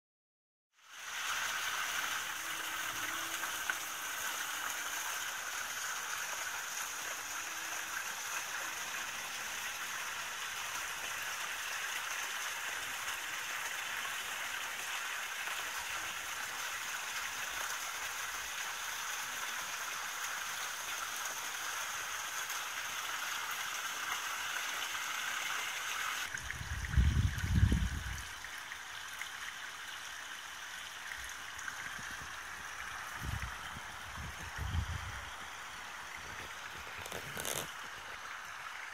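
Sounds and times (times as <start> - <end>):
small waterfall into pond: 0.7 - 38.9
water splashing into pool: 0.9 - 18.4.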